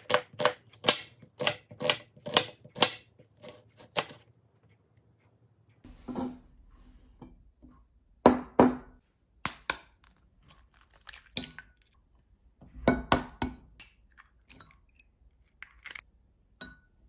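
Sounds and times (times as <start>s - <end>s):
eggs tapped and cracked: 8.3s - 12.0s, 13.0s - 16.1s.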